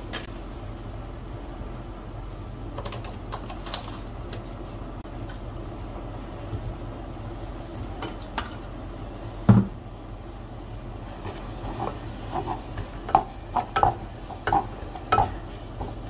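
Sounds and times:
steady low hum: 0.0s - 16.0s
loud dull knock: 9.5s - 9.8s.

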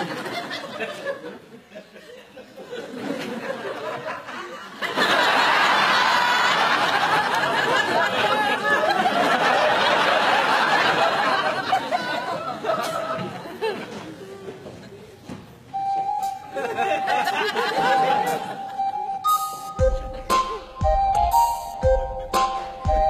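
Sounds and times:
studio audience laughter: 0.0s - 14.2s, 16.4s - 19.1s.

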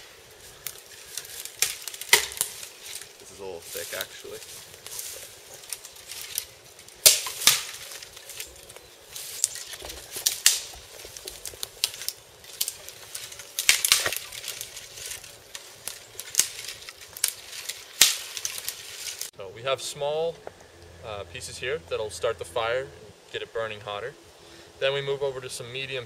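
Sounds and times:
dry branches snapping: 0.0s - 19.3s.

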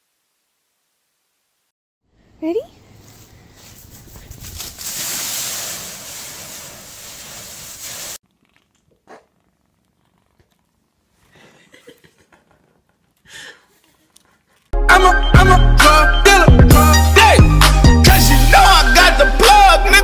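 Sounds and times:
dry leaves rustling and crunching: 3.0s - 8.2s.

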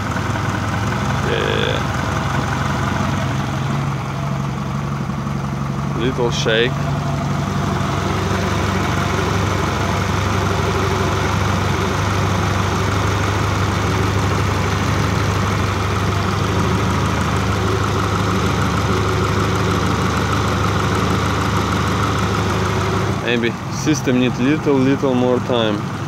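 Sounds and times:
car engine idling: 0.0s - 26.0s.

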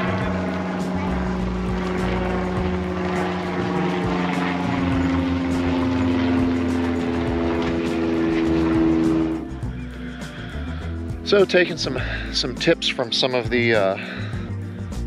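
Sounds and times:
propeller aircraft flying over: 0.0s - 15.0s.

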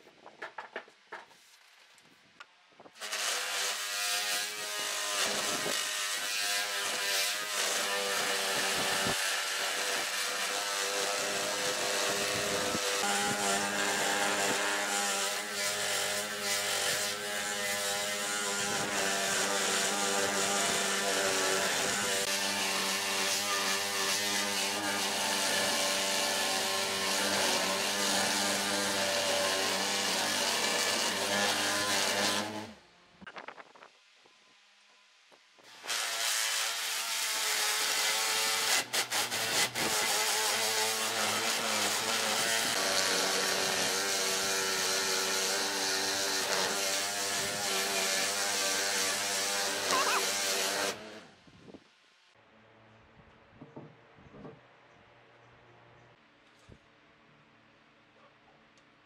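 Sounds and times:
power tool cutting wood: 3.0s - 32.8s, 35.6s - 51.4s.

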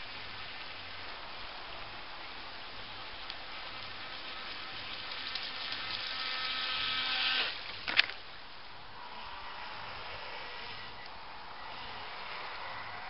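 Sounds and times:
water wash: 0.0s - 13.0s
electric motor whining: 5.8s - 7.6s.

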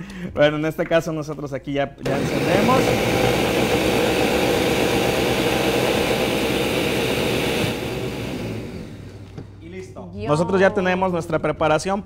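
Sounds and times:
blender running: 2.0s - 9.6s.

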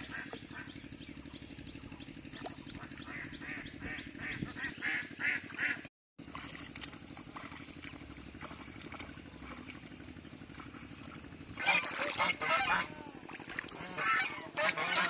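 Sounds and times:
low background hum: 0.0s - 15.0s
geese honking: 2.8s - 5.8s, 11.6s - 15.0s.

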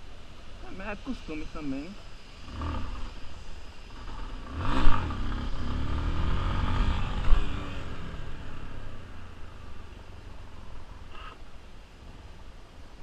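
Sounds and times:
motorcycle engine revving: 2.4s - 10.8s.

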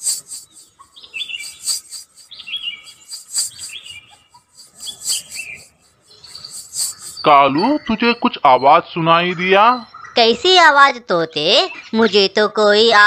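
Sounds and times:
anklet bells jingling: 0.0s - 7.5s
birds chirping: 0.0s - 13.0s.

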